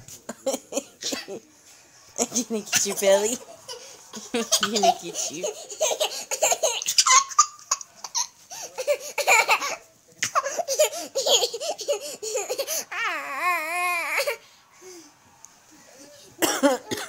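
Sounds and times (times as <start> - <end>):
toddler laughing: 3.6 - 9.8, 10.4 - 14.4.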